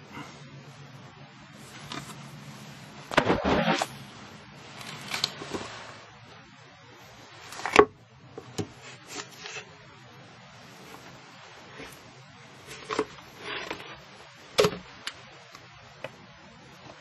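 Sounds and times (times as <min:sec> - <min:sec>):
rubbing sounds: 0:01.6 - 0:06.2.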